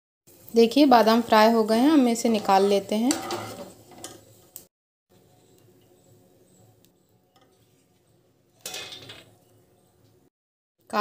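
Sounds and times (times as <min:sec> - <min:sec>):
wire strainer scraping a pan: 0:02.2 - 0:04.3.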